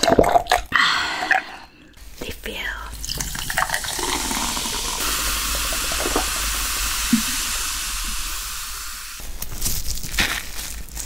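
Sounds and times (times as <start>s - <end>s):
cola fizzing over ice: 2.9s - 9.2s.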